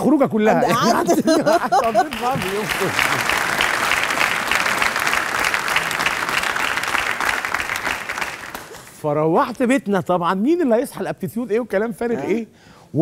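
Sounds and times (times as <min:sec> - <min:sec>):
audience applauding: 0:00.8 - 0:09.0.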